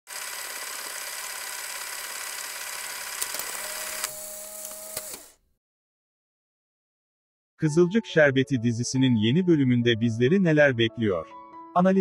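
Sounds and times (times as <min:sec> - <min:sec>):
sharp clicks: 0:03.2 - 0:05.4.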